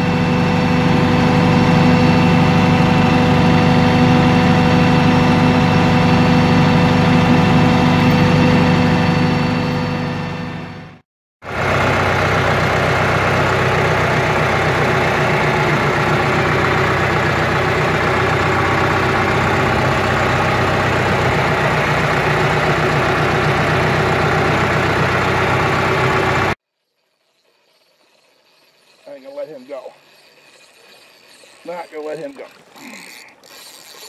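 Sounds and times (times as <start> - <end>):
tractor engine running: 0.0 - 26.6.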